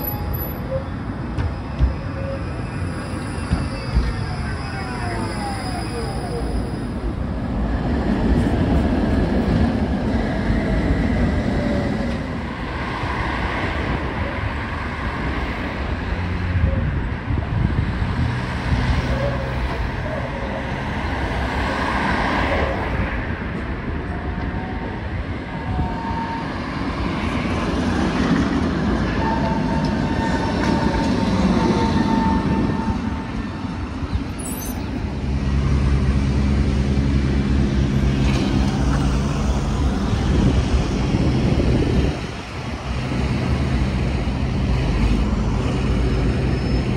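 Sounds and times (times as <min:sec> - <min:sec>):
tram wheels rumbling on rails: 0:00.0 - 0:46.9
wheel squeals: 0:34.3 - 0:34.9.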